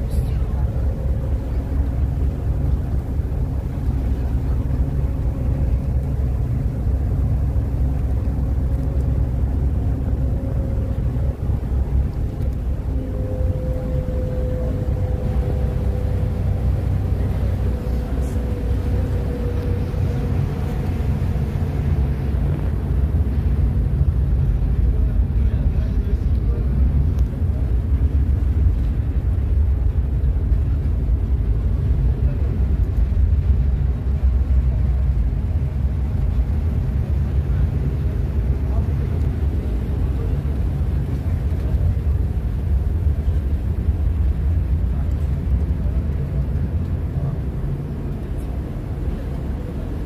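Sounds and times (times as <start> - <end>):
ferry engine drone: 0.0 - 50.0
rushing water: 0.0 - 50.0
wind buffeting microphone: 0.0 - 50.0.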